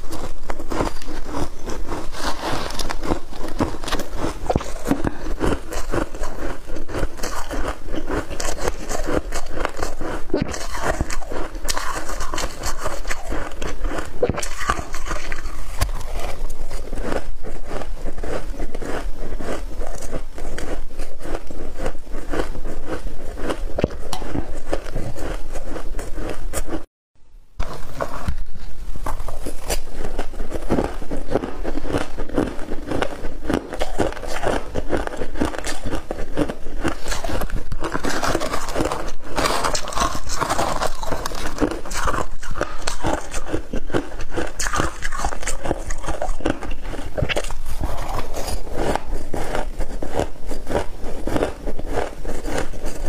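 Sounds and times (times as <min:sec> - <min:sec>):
ice being chewed: 0:00.0 - 0:26.9, 0:27.6 - 0:53.0.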